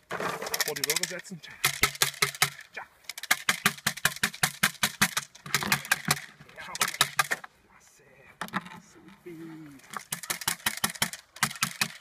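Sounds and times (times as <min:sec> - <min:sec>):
bamboo stick clacking: 0:00.5 - 0:07.5, 0:09.8 - 0:12.0.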